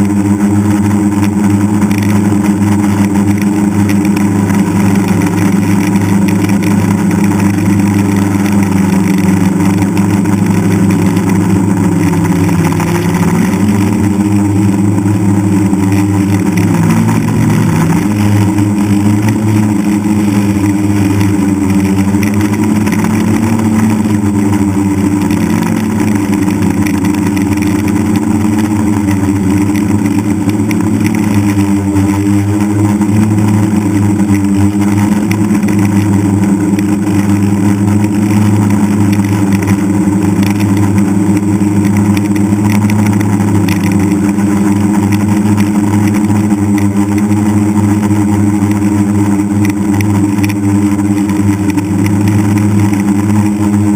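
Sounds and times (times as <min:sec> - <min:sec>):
drone propellers droning: 0:00.0 - 0:53.9.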